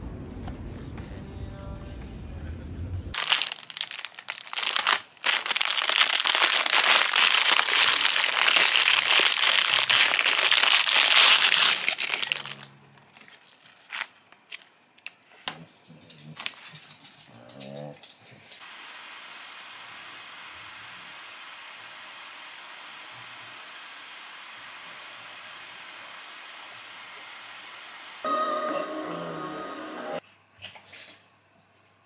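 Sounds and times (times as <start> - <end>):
plastic packaging crinkling: 3.2 - 15.1, 16.4 - 17.2.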